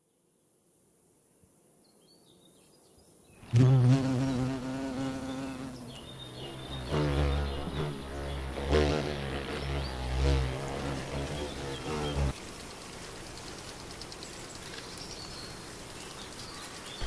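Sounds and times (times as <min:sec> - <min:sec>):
bumblebee buzzing in flight: 0:03.4 - 0:12.4.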